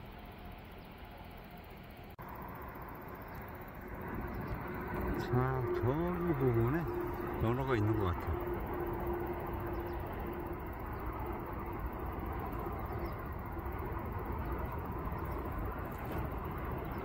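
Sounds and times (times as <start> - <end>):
steady rushing outdoor noise: 0.0 - 17.0.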